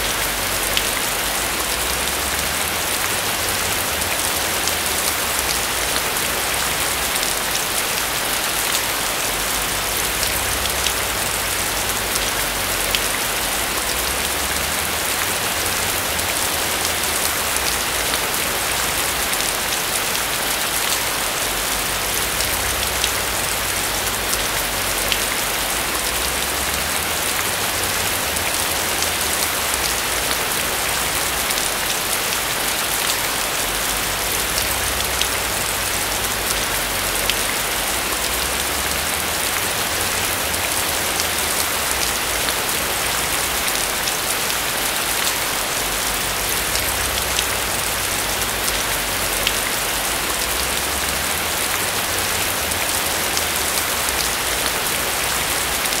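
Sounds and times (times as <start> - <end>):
heavy rain: 0.0 - 56.0.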